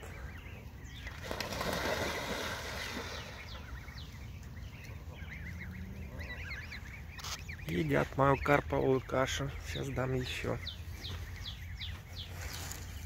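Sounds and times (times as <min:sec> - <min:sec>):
goslings peeping: 0:00.0 - 0:13.0
geese splashing into water: 0:01.0 - 0:04.2.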